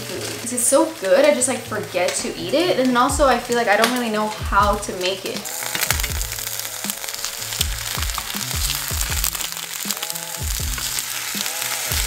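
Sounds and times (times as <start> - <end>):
cabbage sizzling in oil: 0.0 - 12.0
background music with bass beat: 4.4 - 12.0.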